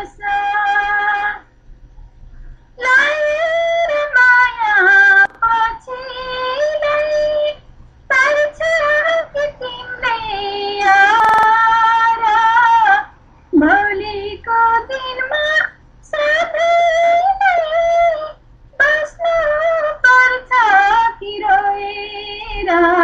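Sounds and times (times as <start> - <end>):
brief click: 11.2 - 11.6.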